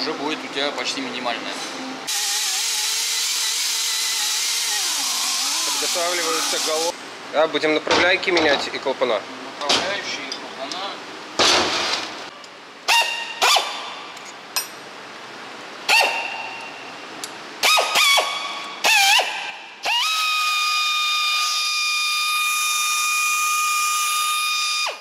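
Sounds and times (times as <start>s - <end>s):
die grinder high whine: 2.1s - 6.9s.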